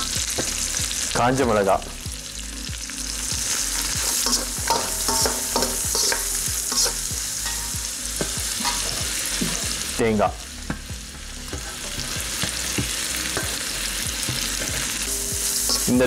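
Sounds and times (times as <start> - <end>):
spices sizzling in hot oil: 0.0 - 16.0
metal ladle clinking and scraping pan: 3.9 - 9.6, 14.6 - 16.0.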